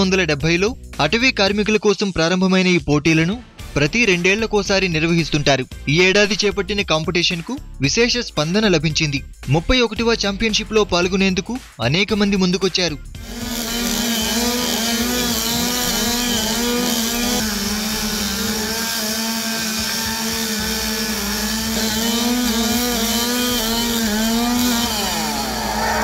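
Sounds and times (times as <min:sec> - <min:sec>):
chainsaw cutting wood: 0:13.1 - 0:26.0.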